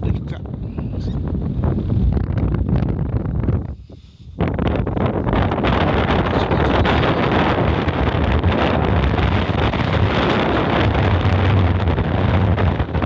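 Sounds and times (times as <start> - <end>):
strong wind on microphone: 0.0 - 13.0.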